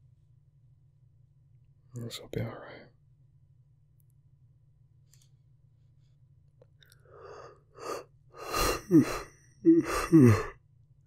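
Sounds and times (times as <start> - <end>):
faint low hum: 0.0 - 11.0
man breathing and sighing: 6.9 - 10.6.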